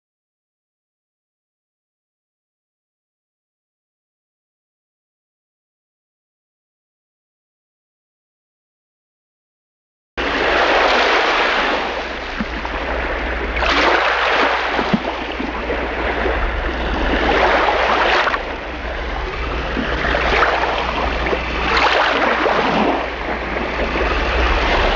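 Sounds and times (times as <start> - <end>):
sea waves washing onto shore: 10.2 - 24.9
steady low rumble: 10.2 - 24.9.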